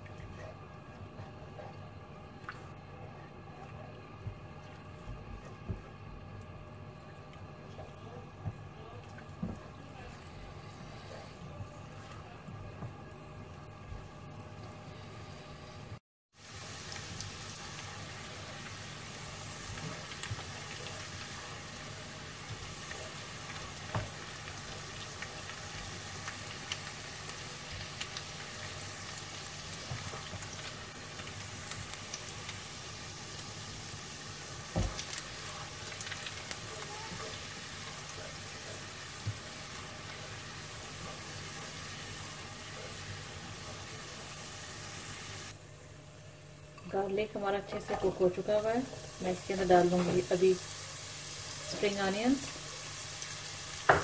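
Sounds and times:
garlic sizzling in hot oil: 15.2s - 45.6s, 46.9s - 54.0s.

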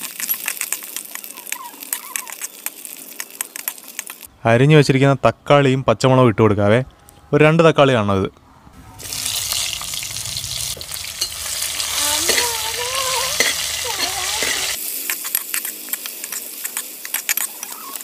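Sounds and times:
vegetables sizzling in oil: 0.0s - 4.3s, 9.0s - 18.0s.

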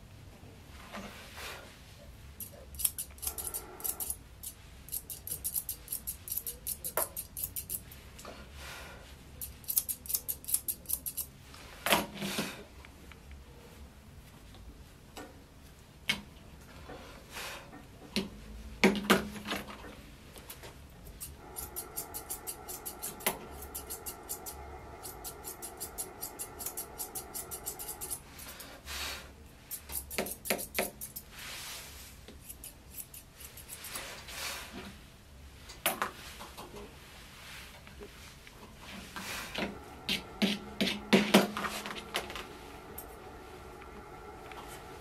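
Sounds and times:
scissors snipping hair: 2.4s - 7.9s, 9.4s - 11.3s, 21.0s - 28.6s, 29.7s - 31.3s, 32.3s - 34.0s.

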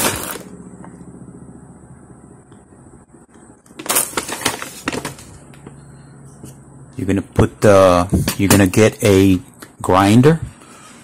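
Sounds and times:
paper bag crinkling: 3.8s - 5.4s.

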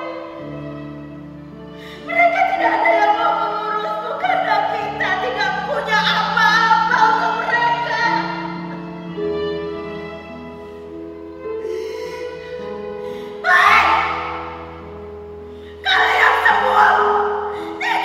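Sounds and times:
slow music of long held notes: 0.0s - 18.0s
woman wailing in grief: 13.4s - 14.4s.

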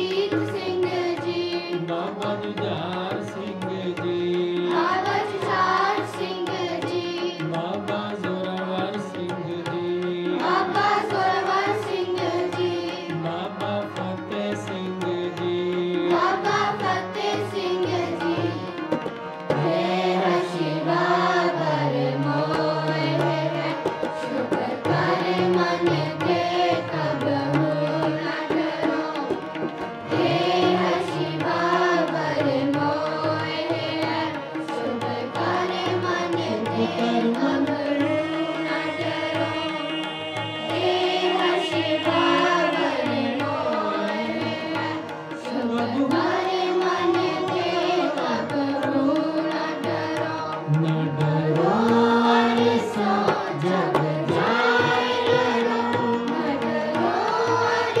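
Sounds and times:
harmonium: 0.0s - 58.0s
tabla: 0.0s - 58.0s
man singing a hymn: 1.8s - 5.1s, 36.4s - 44.3s, 50.7s - 56.5s.

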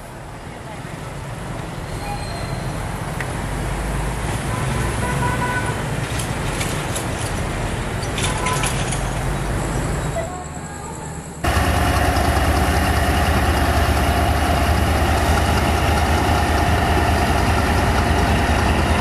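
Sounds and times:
motorbike engines: 0.2s - 19.0s
traffic crossing tracks: 1.0s - 19.0s
locomotive low rumble: 11.4s - 19.0s.

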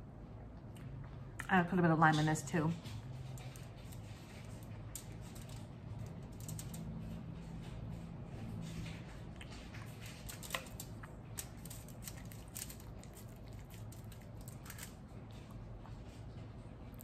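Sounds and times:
chewing crisp taco shell: 8.8s - 17.0s.

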